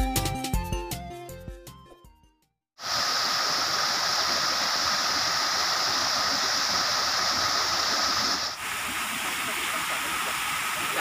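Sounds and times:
waterfall rushing: 2.8s - 11.0s.

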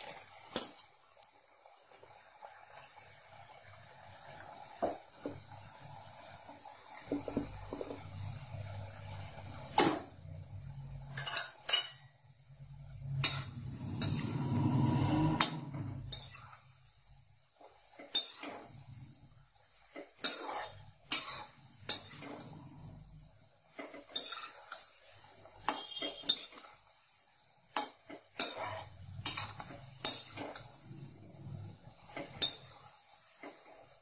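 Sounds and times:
oil sizzling: 0.0s - 34.0s
metal ladle clinking against pan: 25.6s - 26.6s.

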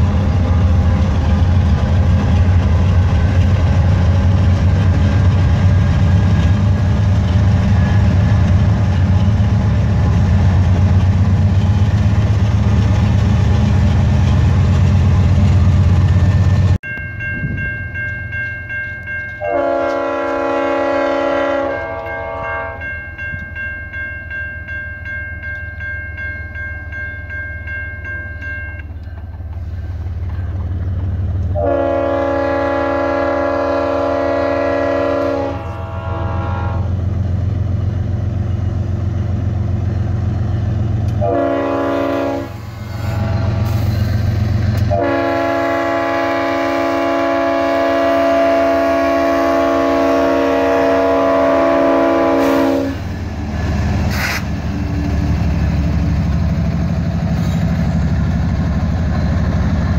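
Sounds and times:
diesel locomotive rumble: 0.0s - 59.9s
train rumble: 0.0s - 59.9s
locomotive air horn blasts: 19.4s - 22.8s, 31.6s - 36.9s, 41.2s - 43.8s, 44.8s - 53.0s.

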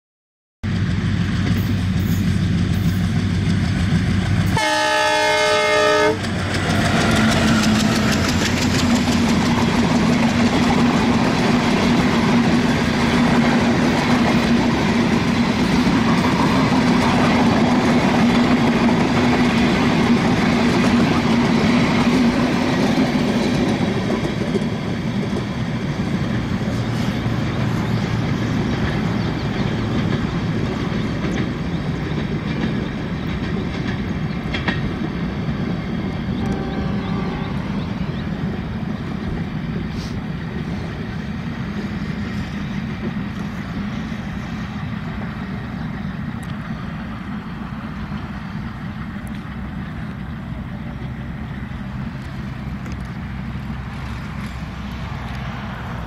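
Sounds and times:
locomotive engine chugging: 0.7s - 55.2s
train coaches clattering over rails: 1.4s - 56.0s
locomotive horn blast: 4.5s - 6.3s, 36.4s - 37.9s.

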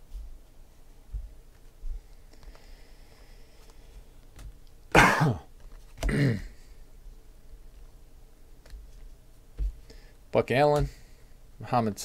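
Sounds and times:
man coughing: 4.9s - 6.6s.

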